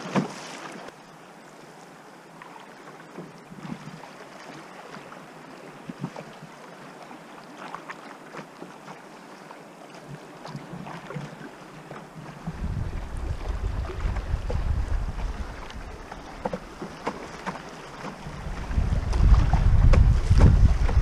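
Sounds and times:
small water splashes: 0.0 - 1.0, 2.3 - 21.0
river water rushing against canoe: 0.0 - 21.0
wind buffeting microphone: 12.4 - 17.1, 18.1 - 21.0.

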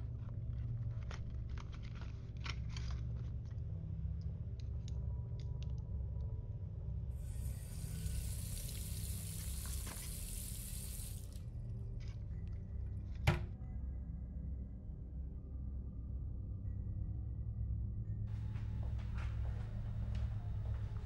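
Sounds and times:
steady low hum: 0.0 - 21.0
tap running into sink: 7.8 - 11.2
clicks and knocks in cabinet: 13.3 - 13.5.

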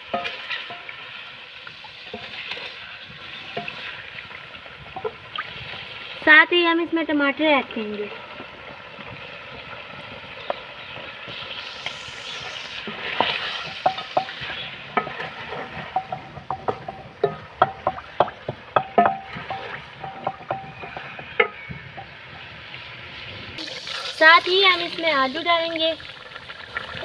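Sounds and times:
food sizzling in oil: 0.0 - 27.0
wooden spoon knocking against pot: 13.7 - 22.2.

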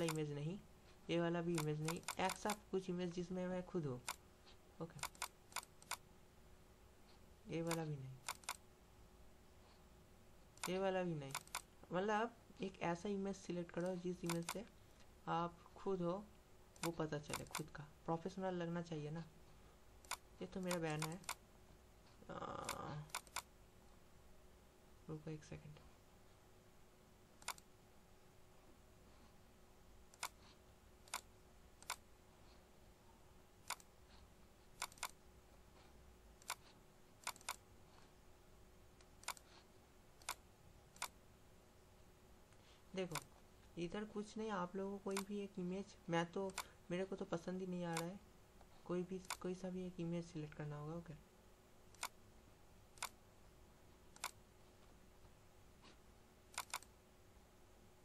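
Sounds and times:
computer mouse clicking: 0.0 - 0.3, 1.5 - 2.6, 4.0 - 4.2, 5.0 - 6.0, 7.6 - 8.6, 10.5 - 11.8, 13.8 - 15.1, 16.8 - 17.8, 20.0 - 21.4, 22.6 - 23.5, 27.4 - 27.7, 30.1 - 32.0, 33.6 - 33.9, 34.7 - 35.2, 36.4 - 37.6, 39.0 - 39.6, 40.2 - 41.2, 45.1 - 45.4, 46.5 - 46.8, 47.9 - 48.1, 49.2 - 49.6, 51.9 - 52.2, 52.9 - 53.2, 54.1 - 54.4, 55.8 - 56.9
faint steady hum: 0.0 - 58.0.

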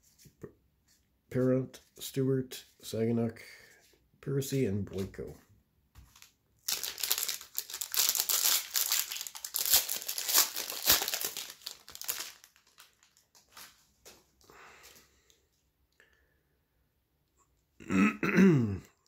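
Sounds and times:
foil wrapper crinkling: 6.1 - 14.2.

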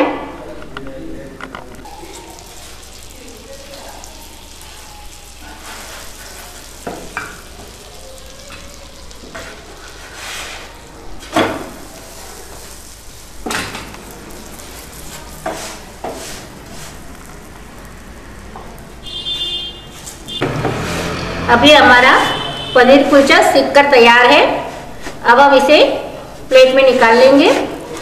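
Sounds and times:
flatbread sizzling on a griddle: 1.8 - 21.2
spatula scraping a pan: 5.3 - 7.5, 8.5 - 13.0, 14.4 - 17.3.

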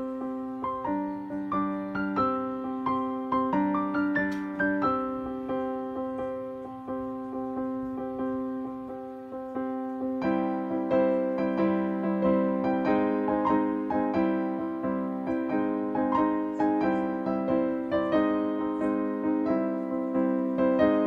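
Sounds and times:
slow piano music: 0.0 - 21.0.

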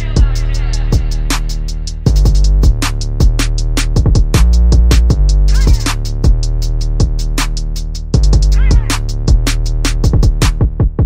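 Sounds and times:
sharp hi-hat strokes: 0.0 - 10.7
bass drum hits: 0.0 - 11.0.

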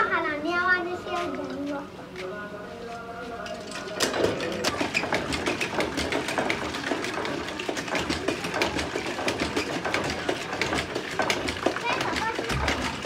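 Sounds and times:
water pump handle clanking: 3.4 - 13.0.

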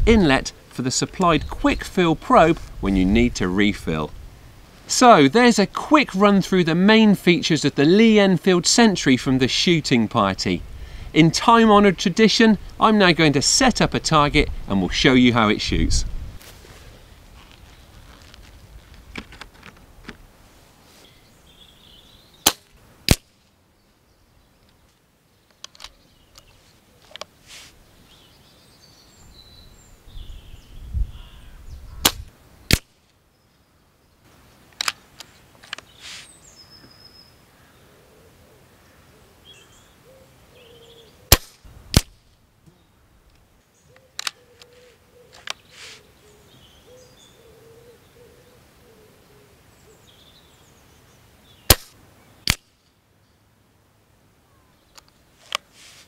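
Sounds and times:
air rifle shots: 22.4 - 23.3, 32.0 - 32.9, 41.3 - 42.2, 51.7 - 52.7.

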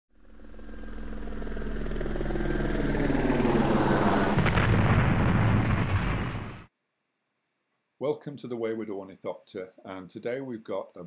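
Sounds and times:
loud dense rush: 3.1 - 6.7.

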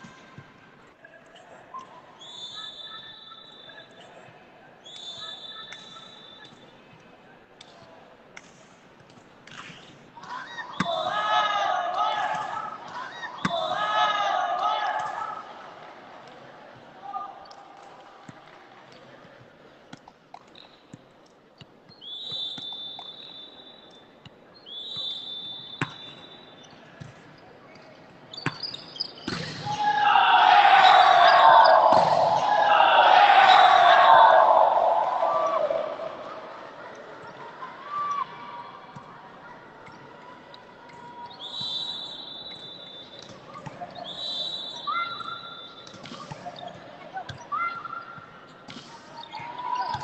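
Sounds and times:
referee's whistle blasts: 2.2 - 4.0, 4.8 - 6.7, 22.0 - 26.7, 41.2 - 43.4, 44.0 - 46.0
hall background noise: 29.2 - 50.0
volleyball being hit: 31.9 - 32.5.

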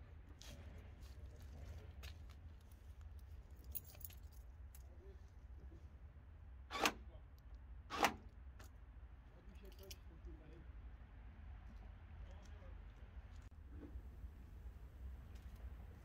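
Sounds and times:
keys clinking: 3.6 - 4.4.

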